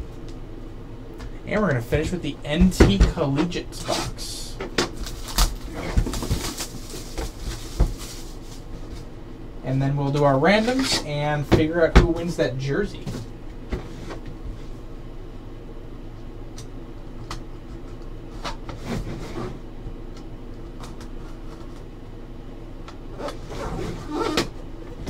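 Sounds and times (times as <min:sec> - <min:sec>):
steady hum: 0:00.0 - 0:25.0
box handling noise: 0:03.9 - 0:09.1.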